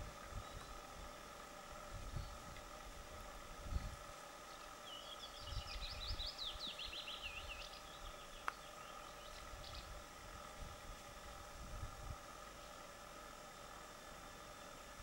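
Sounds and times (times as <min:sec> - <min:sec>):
small songbird singing: 0:00.0 - 0:01.4, 0:02.0 - 0:02.6, 0:03.6 - 0:10.1, 0:12.4 - 0:12.9.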